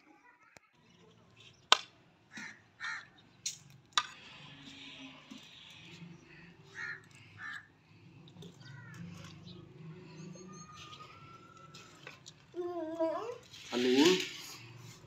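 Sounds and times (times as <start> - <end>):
crows cawing: 2.3 - 3.2, 6.2 - 7.7, 8.4 - 9.5
faint high bird chirps: 8.4 - 12.0.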